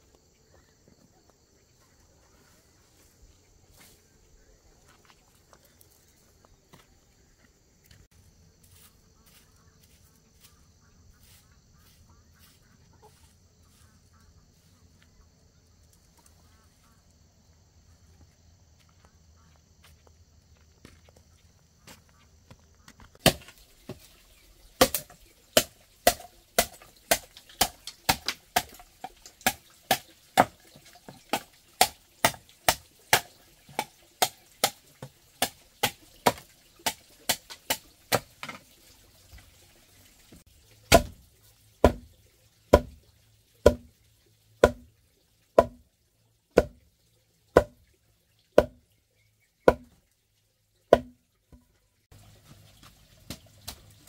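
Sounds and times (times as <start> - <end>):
machete chopping into wood: 23.2 - 23.5, 24.8 - 28.8, 31.3 - 34.8, 35.4 - 38.3, 40.9 - 41.2, 41.8 - 42.0, 43.7 - 43.9, 44.6 - 44.8, 47.6 - 47.8, 49.7 - 49.9.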